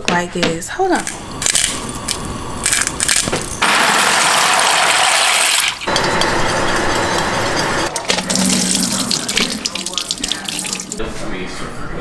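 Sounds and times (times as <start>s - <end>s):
whisk scraping a skillet: 5.9s - 8.0s.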